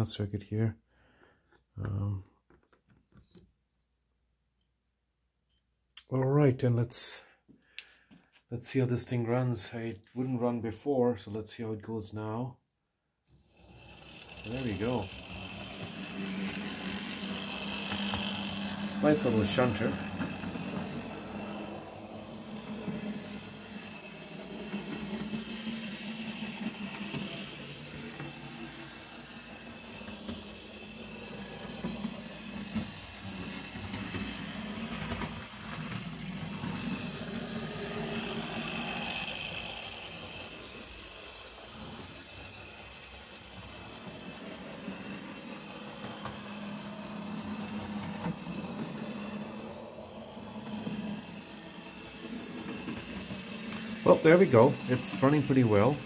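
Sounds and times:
model train motor humming: 13.4s - 56.0s
wheels running on rails: 13.4s - 56.0s.

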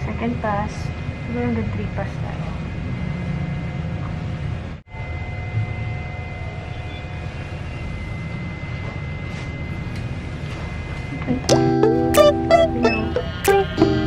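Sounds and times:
low machine hum and whir: 0.0s - 14.0s
thin high tone: 11.4s - 14.0s.

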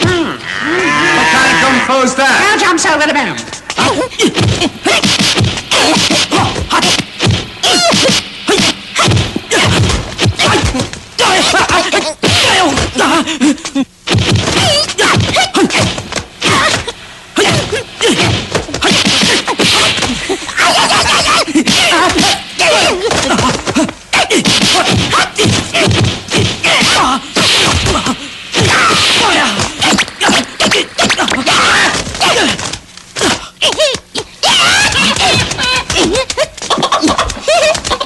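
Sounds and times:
punch and kick whacks: 4.2s - 13.0s, 14.1s - 20.2s, 21.7s - 32.8s.

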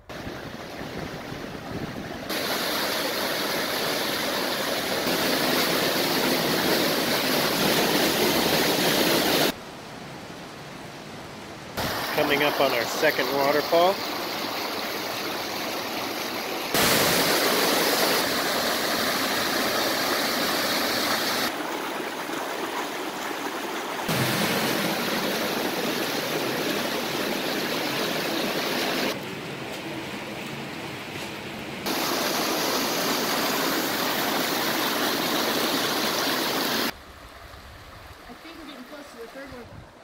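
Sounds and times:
water rushing over waterfall: 0.1s - 9.6s, 11.8s - 29.2s, 31.9s - 37.0s.

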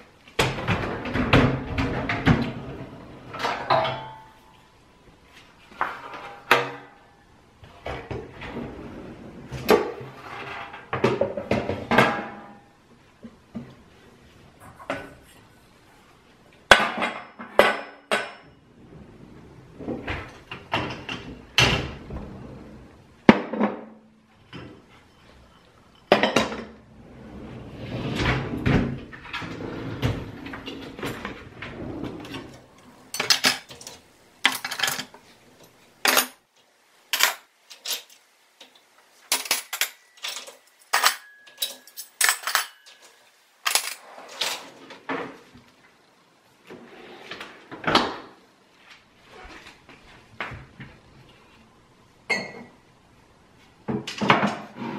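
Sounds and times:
dishes and cutlery clattering: 3.3s - 4.4s, 25.5s - 26.8s, 33.1s - 36.4s, 37.1s - 38.2s, 39.3s - 45.3s.

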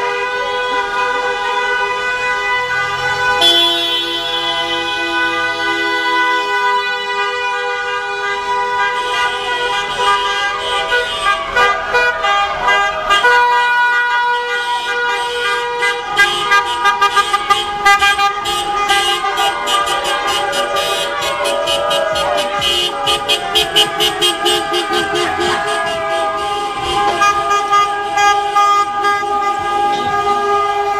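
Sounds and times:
car horns honking: 0.0s - 30.9s.

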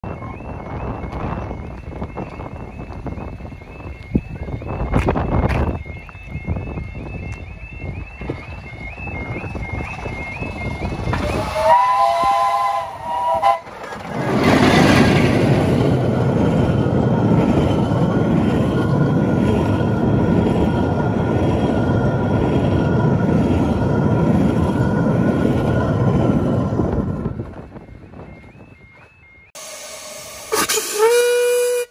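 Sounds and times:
coaches rumbling over rails: 0.0s - 31.5s
locomotive passing with a rush: 8.0s - 28.3s
steam locomotive whistle: 10.8s - 13.7s, 29.6s - 31.9s.

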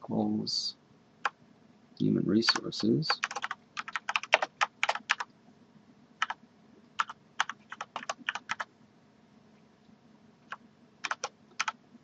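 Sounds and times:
computer keyboard typing: 2.5s - 5.3s, 6.2s - 6.4s, 7.0s - 8.7s, 10.5s - 11.8s.

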